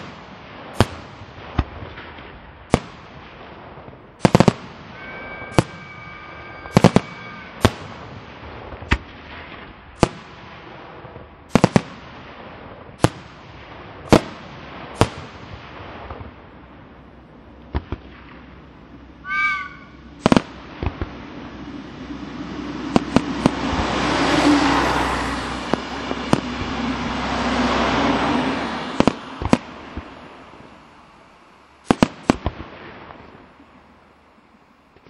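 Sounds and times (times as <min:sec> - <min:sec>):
firework crackling and rumble: 0:00.0 - 0:35.0
firework shells bursting: 0:03.8 - 0:17.0, 0:17.6 - 0:24.2, 0:25.6 - 0:28.0, 0:28.8 - 0:30.7, 0:31.8 - 0:33.6.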